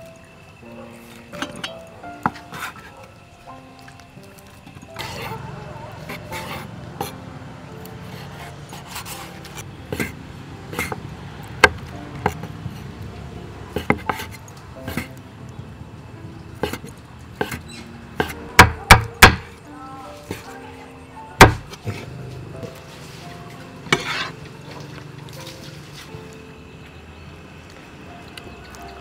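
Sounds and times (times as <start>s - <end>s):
knife chopping on wooden board: 13.8s - 14.3s, 18.2s - 19.5s, 21.4s - 22.0s.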